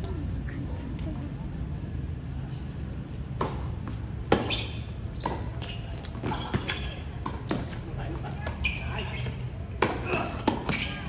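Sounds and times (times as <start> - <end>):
racket hitting tennis ball: 3.4 - 7.8, 9.8 - 11.0.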